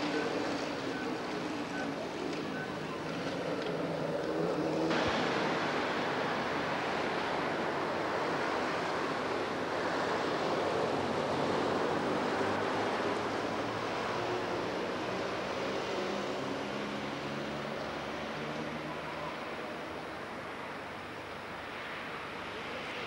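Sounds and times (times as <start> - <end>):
steady rushing noise: 0.0 - 18.2.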